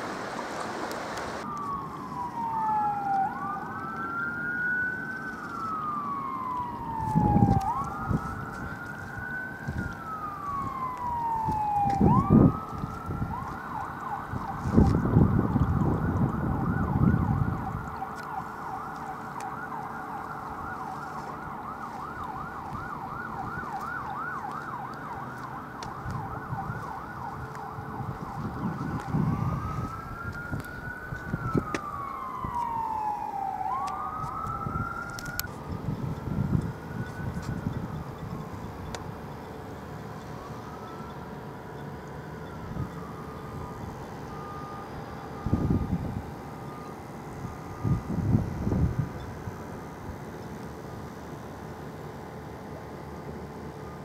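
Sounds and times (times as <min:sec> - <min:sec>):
rushing noise: 0:00.0 - 0:01.5
emergency siren wailing: 0:00.0 - 0:54.0.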